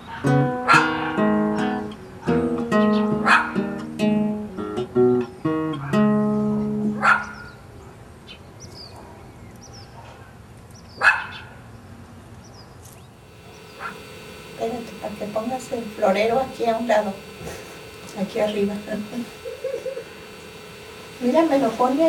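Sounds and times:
outdoor background noise: 0.0 - 22.0
plucked acoustic guitar music: 0.3 - 7.0.

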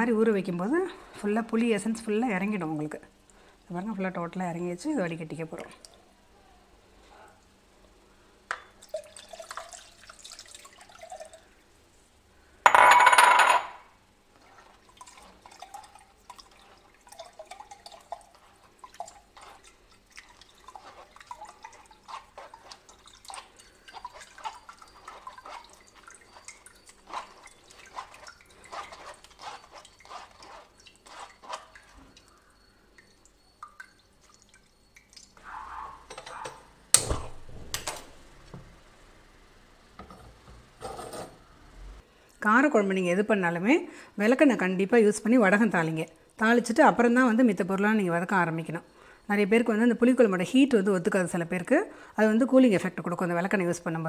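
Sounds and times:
wet squelching and dripping: 14.4 - 36.0.

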